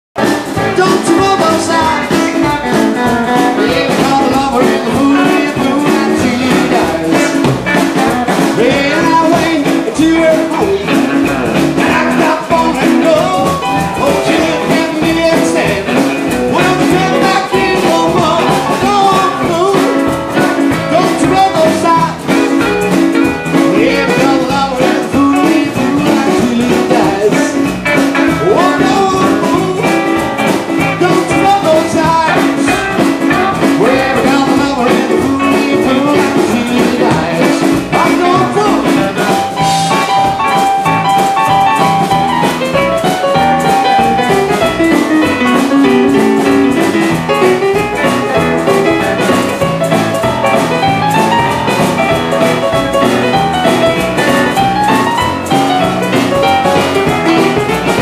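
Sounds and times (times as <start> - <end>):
drums: 0.1 - 58.0
upright bass: 0.1 - 58.0
man singing: 0.2 - 22.6, 23.5 - 42.1, 46.8 - 51.5
electric guitar: 0.2 - 58.0
keyboard: 0.2 - 58.0.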